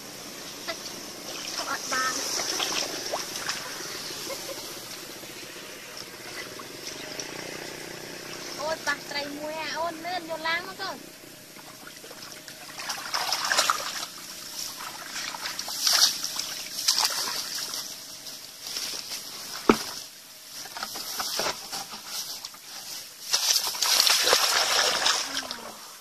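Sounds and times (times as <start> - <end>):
hands sloshing in muddy water: 0.7 - 8.6, 11.6 - 18.0, 23.3 - 25.8.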